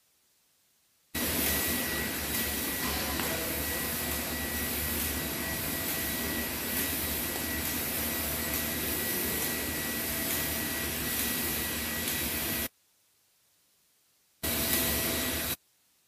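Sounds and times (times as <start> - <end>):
printers running with fans whirring: 1.2 - 12.7, 14.4 - 15.6.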